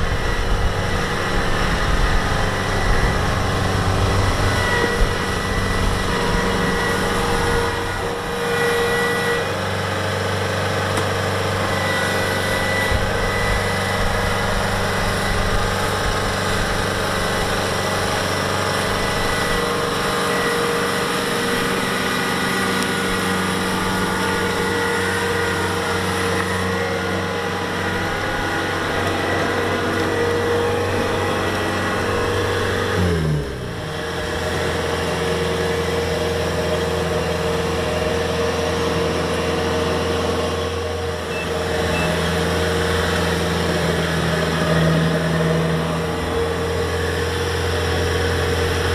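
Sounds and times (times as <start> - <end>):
diesel engine running: 0.0 - 48.9.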